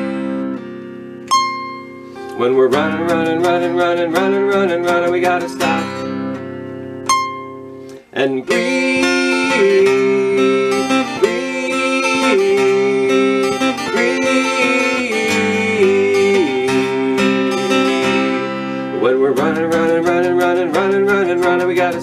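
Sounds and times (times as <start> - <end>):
acoustic guitar strummed and picked: 0.0 - 22.0
wordless vocal sliding between notes: 7.9 - 22.0.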